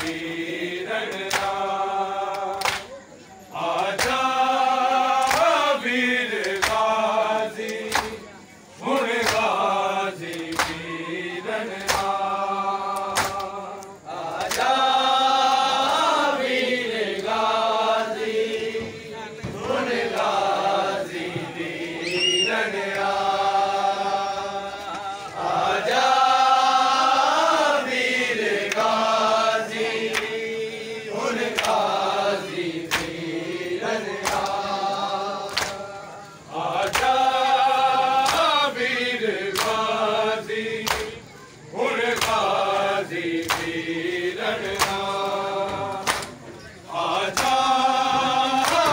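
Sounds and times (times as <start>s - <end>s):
men chanting a lament: 0.0s - 48.9s
hands slapping chests: 1.1s - 1.6s, 2.3s - 2.9s, 5.2s - 5.6s, 6.4s - 8.2s, 8.9s - 9.6s, 10.2s - 10.8s, 11.7s - 12.2s, 12.9s - 14.8s, 30.0s - 30.4s, 31.4s - 31.9s, 32.8s - 33.2s, 34.2s - 34.7s, 35.4s - 35.8s, 36.8s - 37.2s, 38.2s - 38.6s, 39.5s - 39.8s, 40.8s - 41.2s, 42.1s - 42.6s, 43.3s - 43.8s, 44.6s - 45.3s, 46.0s - 46.4s, 47.2s - 48.9s.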